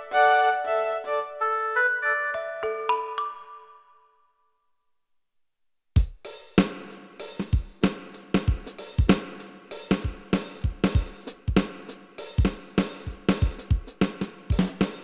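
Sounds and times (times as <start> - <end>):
electronic drum kit beat: 6.0 - 15.0.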